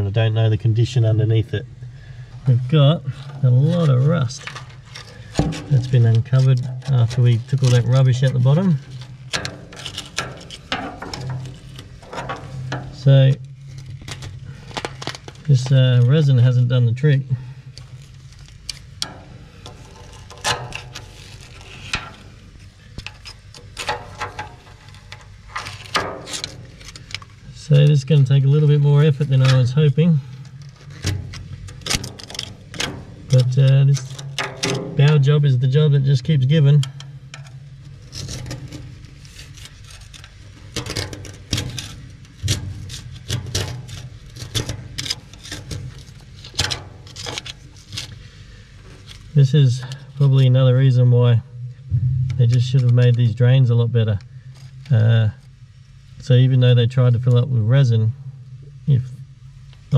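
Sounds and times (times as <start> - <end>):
steady low hum: 0.0 - 59.9
hand tool scraping rust: 2.5 - 35.4, 36.8 - 49.2.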